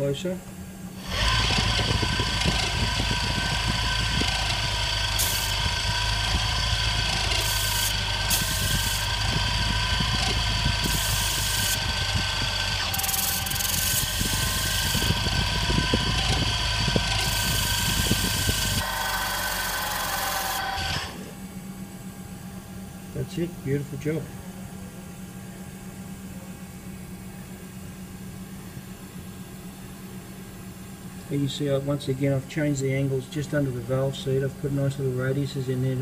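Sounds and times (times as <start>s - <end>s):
machine motor whine: 0.9s - 23.1s
cutter scraping metal: 1.0s - 21.4s.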